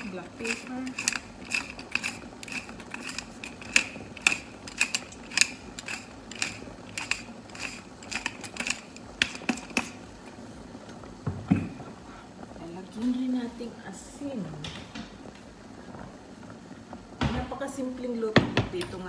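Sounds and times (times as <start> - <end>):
pepper mill cracking peppercorns: 0.0 - 10.1.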